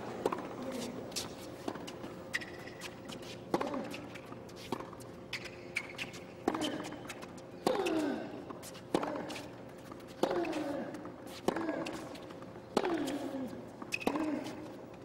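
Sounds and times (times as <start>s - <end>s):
shoe squeaks: 0.6s - 8.0s, 13.9s - 14.8s
tennis racket hitting ball: 10.2s - 10.8s, 11.4s - 13.3s.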